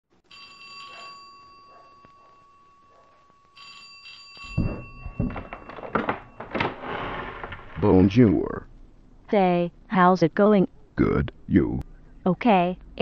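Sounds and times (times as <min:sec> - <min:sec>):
doorbell ringing: 0:00.3 - 0:07.3
loud thumps: 0:04.5 - 0:06.8.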